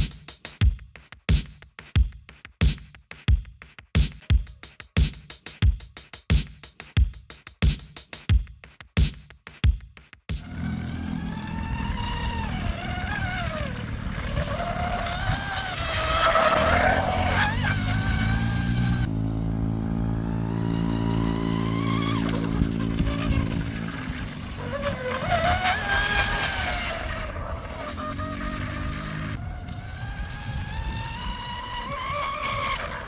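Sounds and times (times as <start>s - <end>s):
electric motor whining: 10.4s - 33.0s.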